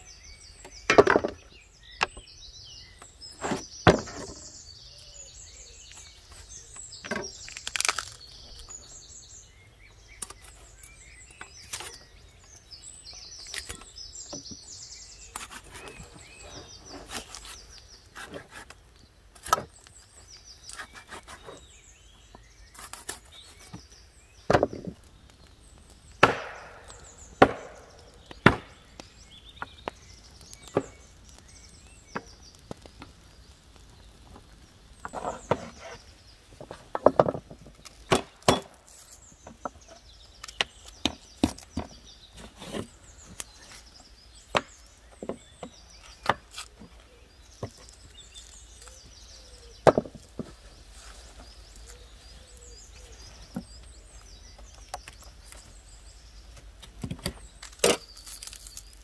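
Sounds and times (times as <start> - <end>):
firewood being chopped: 0.6 - 2.2, 3.0 - 4.6, 5.8 - 8.8, 13.2 - 50.7, 56.5 - 59.0.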